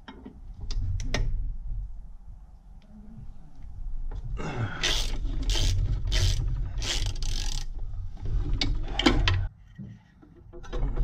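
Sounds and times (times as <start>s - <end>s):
ratchet wrench clicking: 4.8s - 7.7s.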